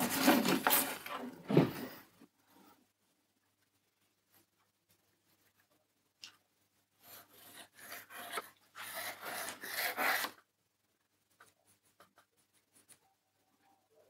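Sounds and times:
pencil scratching on wood: 7.0 - 10.4.

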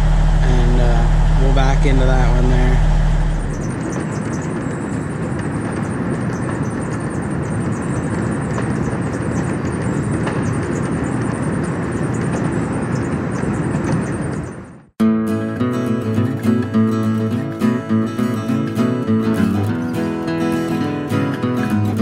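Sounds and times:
faint high whine: 0.0 - 14.8
conveyor machinery din: 0.0 - 14.9.

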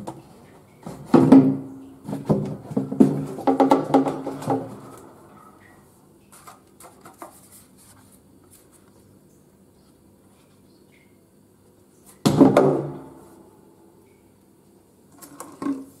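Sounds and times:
plastic bottle knocking hollowly: 1.1 - 4.8.

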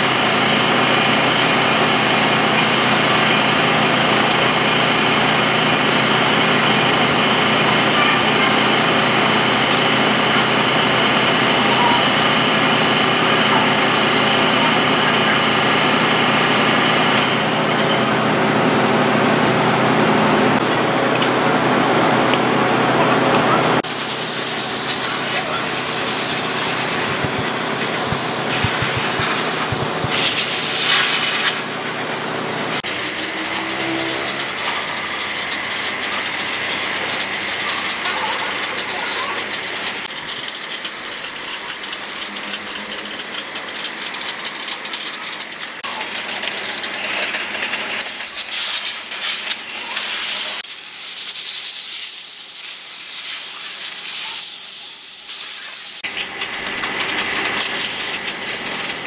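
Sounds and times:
pressure washer jet spraying: 23.8 - 56.1
hose water running over metal: 23.8 - 59.0.

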